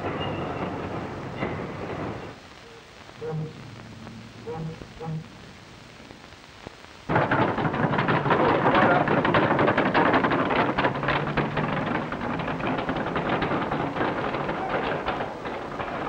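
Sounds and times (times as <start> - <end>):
barrow wheels clattering on cobblestones: 0.0 - 2.4, 7.1 - 16.0.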